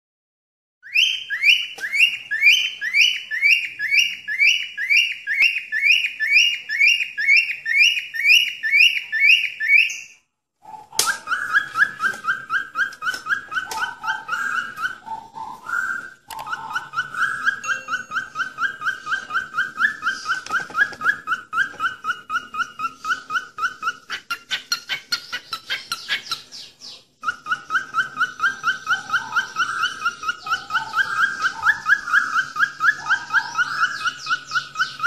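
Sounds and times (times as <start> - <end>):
whistled lower notes: 10.9 - 23.2
whistled high chirping notes: 11.0 - 23.8.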